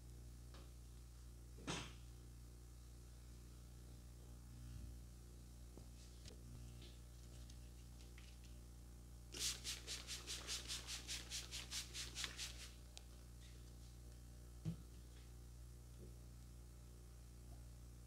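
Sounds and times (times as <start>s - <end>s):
spray bottle hissing sprays: 9.4s - 12.8s.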